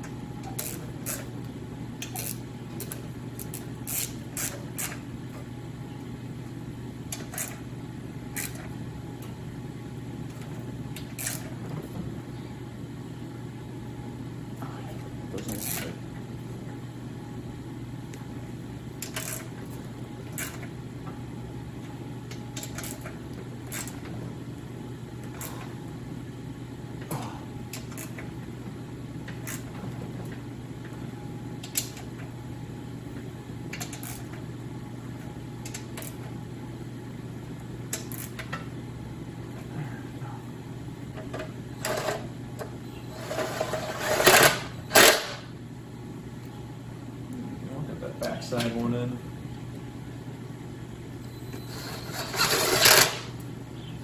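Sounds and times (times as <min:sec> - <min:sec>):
steady low hum: 0:00.0 - 0:54.0
cordless power tool whirring: 0:51.6 - 0:53.3.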